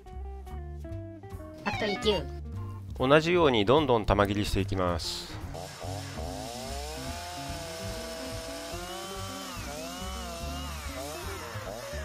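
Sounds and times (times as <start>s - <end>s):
chainsaw cutting log: 5.5s - 12.0s.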